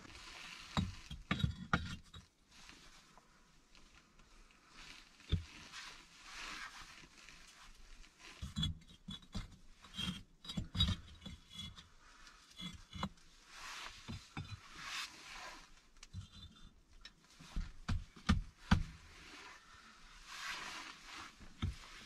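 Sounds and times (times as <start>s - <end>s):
brick scraping against brick: 0.0s - 2.3s, 8.2s - 16.8s, 20.3s - 22.0s
bricks knocking and clicking: 0.8s - 2.2s, 5.3s - 5.5s, 8.4s - 11.9s, 12.6s - 13.2s, 14.1s - 14.6s, 16.1s - 16.7s, 17.6s - 19.0s.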